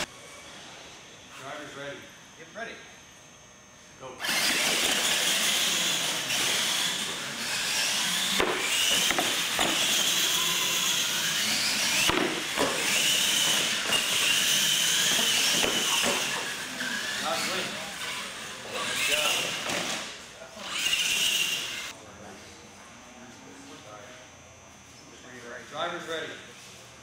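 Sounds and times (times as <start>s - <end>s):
toy truck motor whine: 0.0s - 0.6s, 4.2s - 22.0s.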